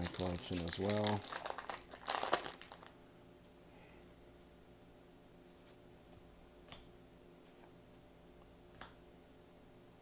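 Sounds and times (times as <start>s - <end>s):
crinkle: 0.0s - 3.0s
faint steady hum: 0.0s - 10.0s.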